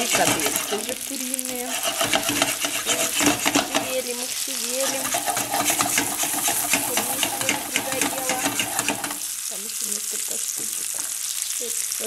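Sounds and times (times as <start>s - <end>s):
stirring clatter: 0.0s - 9.3s
meatballs sizzling in a pan: 0.0s - 12.0s.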